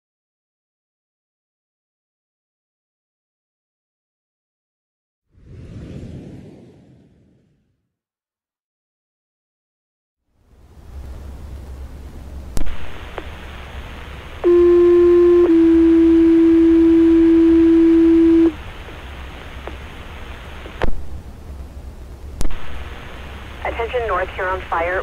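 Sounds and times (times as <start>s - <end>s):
radio hiss: 12.6s - 16.4s, 17.4s - 20.9s, 22.4s - 25.0s.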